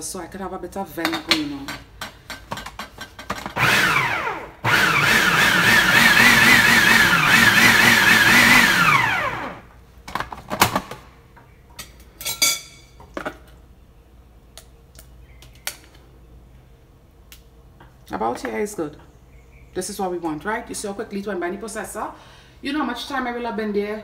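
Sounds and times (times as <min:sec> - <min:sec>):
food processor motor running: 0:03.6 - 0:09.7.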